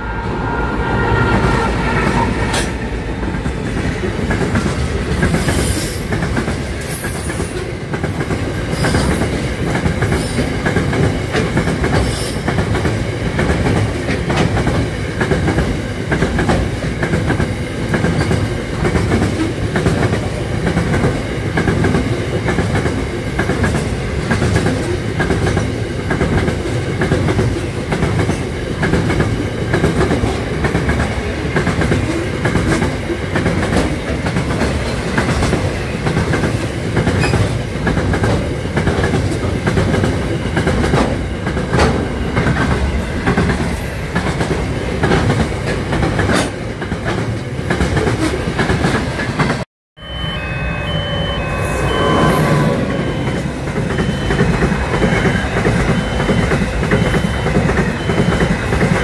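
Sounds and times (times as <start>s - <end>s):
freight train rolling past: 0.0s - 59.0s
wheels clattering on rails: 2.5s - 49.6s.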